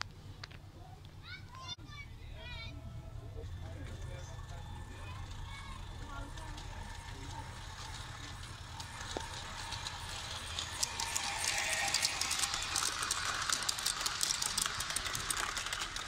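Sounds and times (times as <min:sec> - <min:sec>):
model train wheels clicking on rails: 0:03.5 - 0:16.0.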